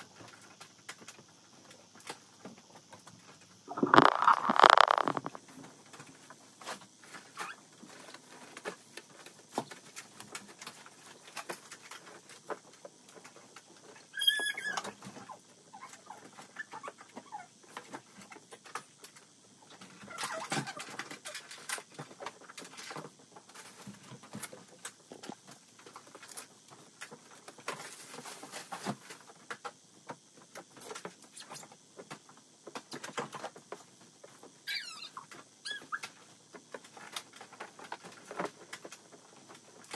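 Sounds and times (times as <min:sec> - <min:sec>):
high squeak: 0:14.2 - 0:14.8.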